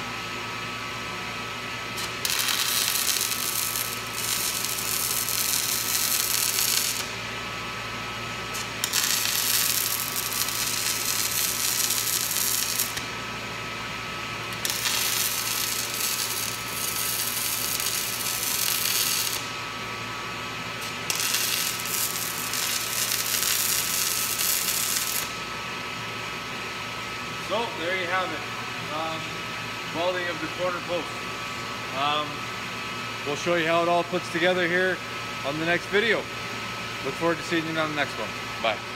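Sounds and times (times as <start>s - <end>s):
machine hum: 0.0s - 38.9s
welding arc crackling: 2.0s - 7.2s, 8.5s - 13.3s, 14.4s - 19.7s, 20.8s - 25.5s.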